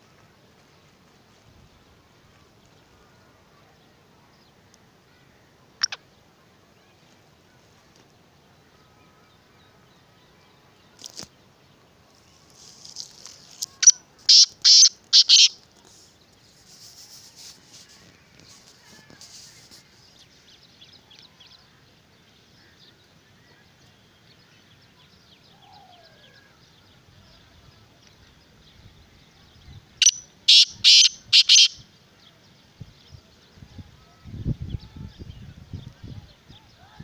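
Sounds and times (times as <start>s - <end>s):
francolin harsh calls: 13.6s - 15.6s, 30.0s - 31.8s.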